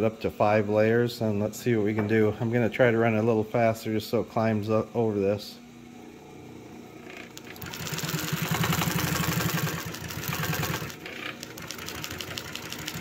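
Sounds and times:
sewing machine stitching: 7.4s - 13.0s.

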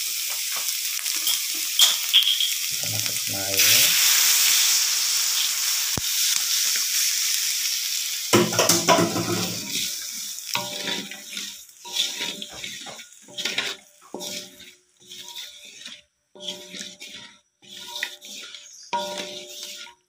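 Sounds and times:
spice paste sizzling in wok: 0.0s - 20.0s
wooden spatula stirring: 8.4s - 20.0s.

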